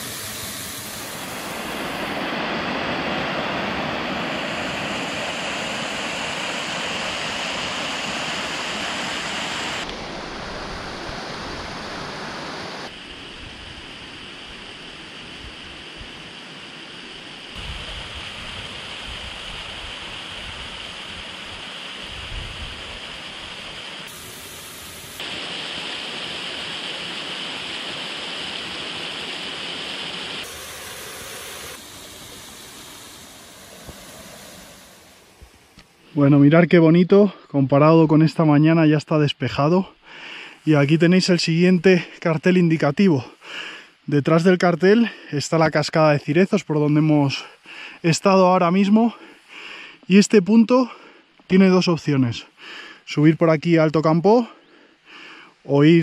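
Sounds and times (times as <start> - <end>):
water rushing over rock: 0.0 - 13.0, 17.6 - 35.4.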